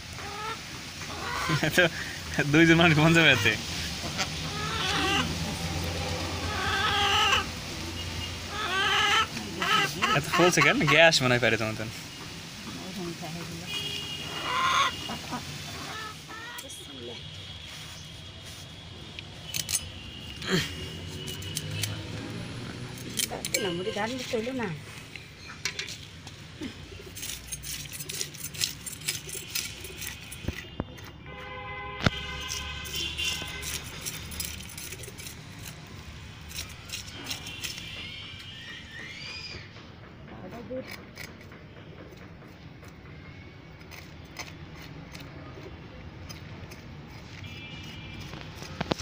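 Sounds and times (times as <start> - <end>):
knife scraping fish scales: 17.5 - 22.2, 25.9 - 31.2, 32.1 - 38.0, 43.8 - 49.0.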